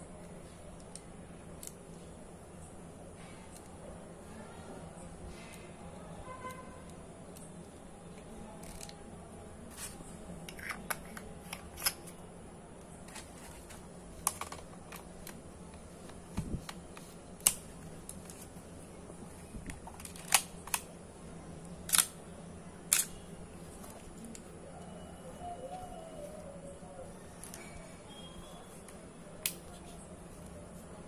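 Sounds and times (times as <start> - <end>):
sharp camera mechanical clicks: 21.8 - 22.2.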